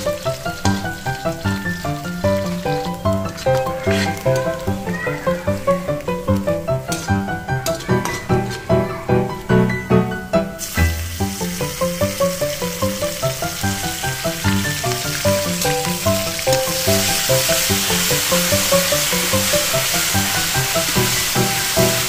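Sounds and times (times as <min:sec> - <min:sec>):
spoon stirring in pan: 0:00.0 - 0:08.8
onions sizzling in oil: 0:00.0 - 0:09.7, 0:10.6 - 0:22.0
rhythmic background music: 0:00.0 - 0:22.0.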